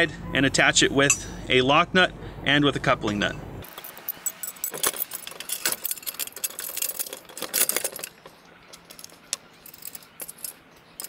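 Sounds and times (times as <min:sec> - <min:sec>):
metal hardware clinking and rattling: 0:03.1 - 0:11.0.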